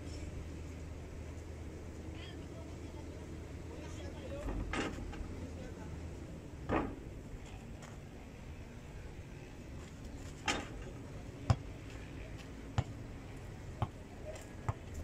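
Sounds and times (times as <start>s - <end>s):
basketball bouncing on dirt: 11.5s - 11.8s, 12.7s - 13.0s, 14.6s - 15.0s.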